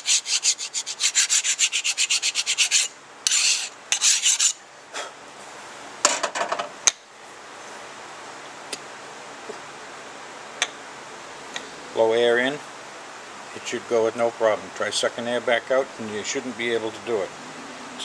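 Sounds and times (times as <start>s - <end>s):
file rasping on metal: 0.0s - 4.6s.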